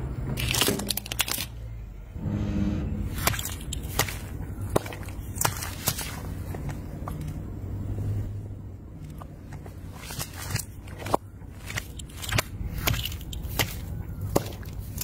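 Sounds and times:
plastic bottles crunching under tyre: 0.3s - 1.6s, 3.1s - 7.4s, 9.0s - 15.0s.

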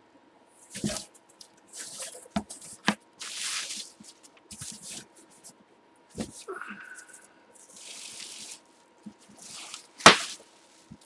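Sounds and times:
bubble wrap crinkling: 0.6s - 5.6s, 6.2s - 11.0s.

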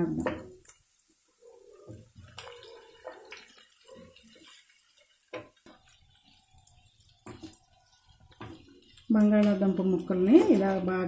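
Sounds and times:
spatula stirring in pan: 0.1s - 10.7s.

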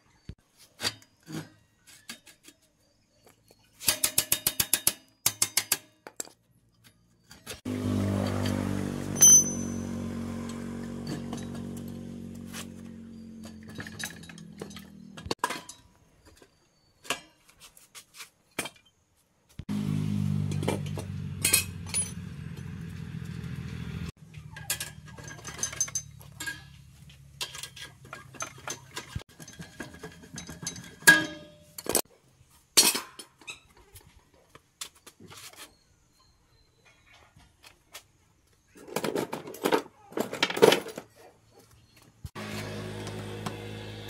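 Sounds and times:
metal tools clinking: 9.2s - 17.6s, 20.5s - 22.8s, 24.4s - 32.0s
motor humming: 42.4s - 44.0s.

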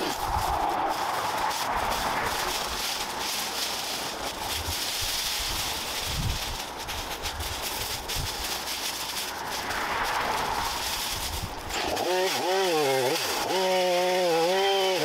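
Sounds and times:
wind rumbling on microphone: 0.0s - 11.8s
leaves and bamboo rustling: 0.0s - 15.0s.

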